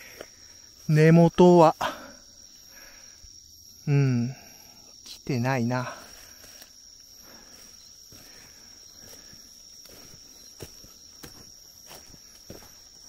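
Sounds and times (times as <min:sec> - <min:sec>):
night insects chorus: 0:00.0 - 0:13.0
footsteps on forest floor: 0:05.8 - 0:13.0.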